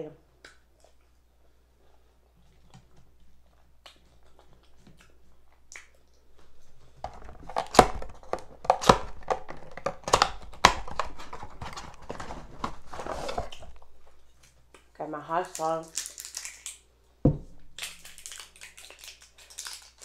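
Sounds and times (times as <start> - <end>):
cardboard crinkling: 6.4 - 14.4.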